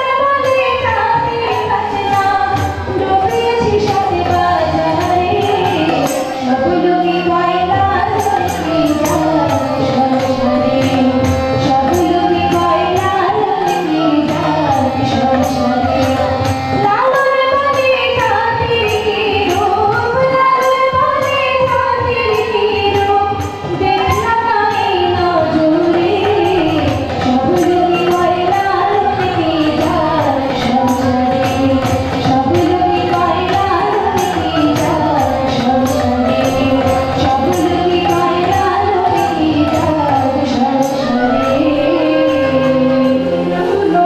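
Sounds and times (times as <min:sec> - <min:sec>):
harmonium chords: 0:00.0 - 0:44.0
woman singing: 0:00.0 - 0:44.0.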